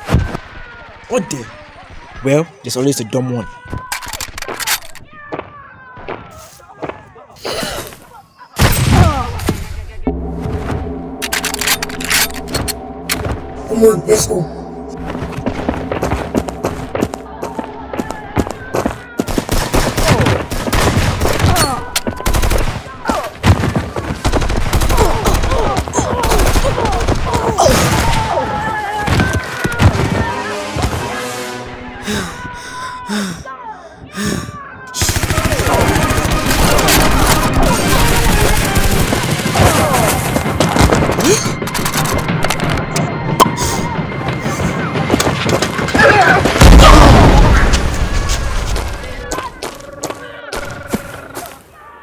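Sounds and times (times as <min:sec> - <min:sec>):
deep low rumble: 0:09.6 - 0:18.7
automatic gunfire: 0:35.0 - 0:39.5.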